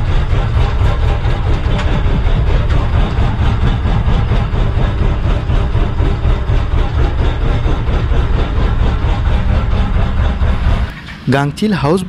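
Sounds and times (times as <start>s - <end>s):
boat engine low rumble: 0.0s - 12.0s.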